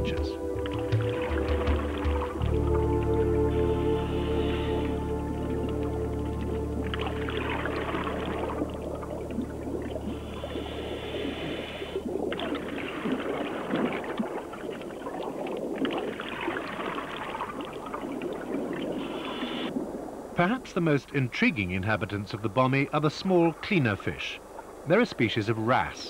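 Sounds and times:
low music chord: 0:00.0 - 0:10.8
underwater breathing bubbles: 0:03.5 - 0:05.3, 0:06.8 - 0:20.0.

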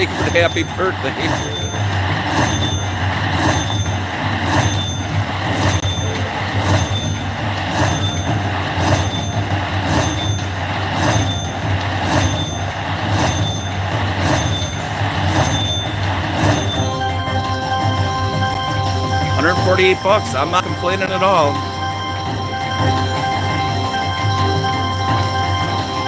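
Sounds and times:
low hum of casino noise: 0:00.0 - 0:26.0
short electronic chime: 0:00.0 - 0:26.0.

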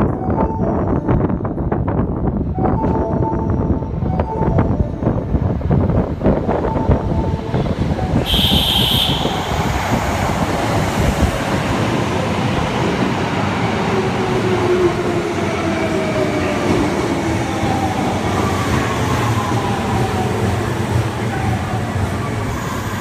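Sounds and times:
train wheels and motors rumbling: 0:05.0 - 0:23.0
short high train horn: 0:08.2 - 0:09.8.

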